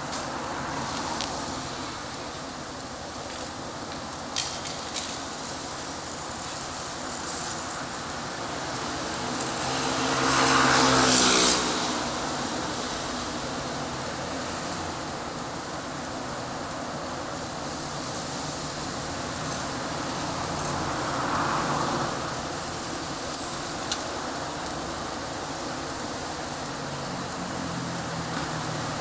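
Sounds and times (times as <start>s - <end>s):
car passing close: 0.0s - 2.1s, 7.6s - 15.8s, 17.6s - 29.0s
street traffic going by: 0.0s - 29.0s.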